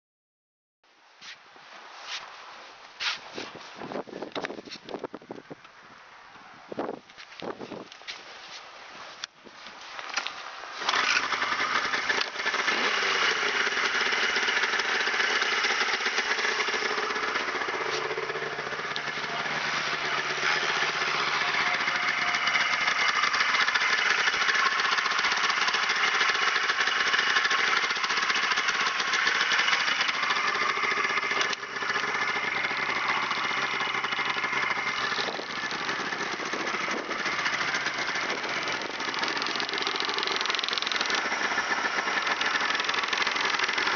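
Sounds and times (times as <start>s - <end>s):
snowmobile engine starting and idling: 10.1s - 43.9s.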